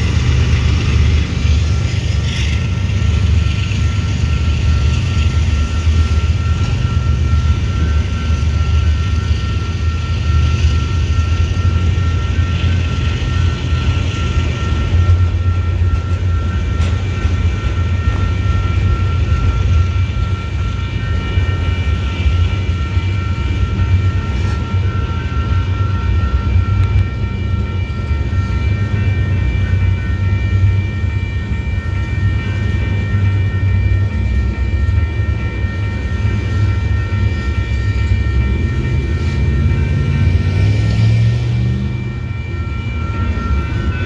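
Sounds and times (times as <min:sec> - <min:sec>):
freight train rumbling past: 0:00.0 - 0:44.0
high-pitched tones: 0:00.0 - 0:44.0.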